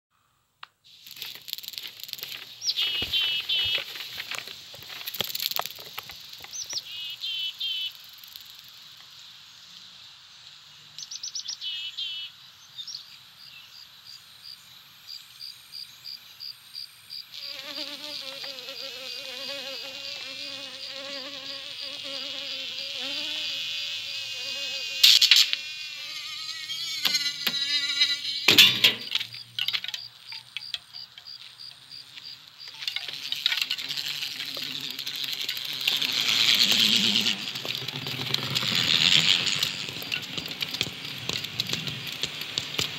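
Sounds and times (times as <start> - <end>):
insect chirps: 0.2 - 42.9
insect wings buzzing: 0.9 - 10.0, 16.8 - 42.9
wavering pitched buzz: 24.3 - 29.2.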